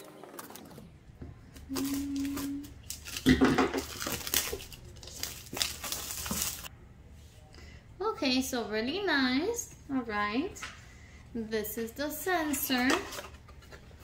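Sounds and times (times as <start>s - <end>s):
plastic sticker crackling and tearing: 1.7s - 6.7s.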